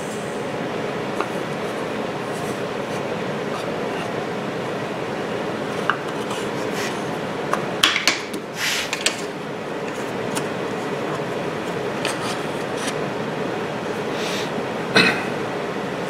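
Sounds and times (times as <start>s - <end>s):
shop machinery noise: 0.0s - 16.0s.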